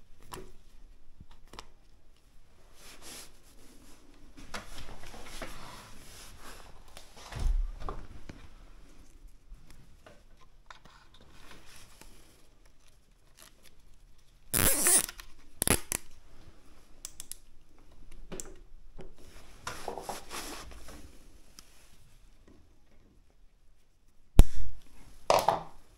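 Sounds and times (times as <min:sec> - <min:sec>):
cable tie zipping rasp: 0:14.5 - 0:16.0
cable tie snipped: 0:14.6 - 0:16.1.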